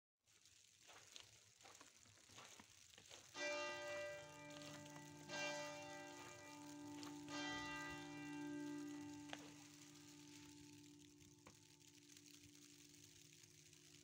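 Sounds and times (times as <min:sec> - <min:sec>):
church bell tolling: 0:03.4 - 0:10.9.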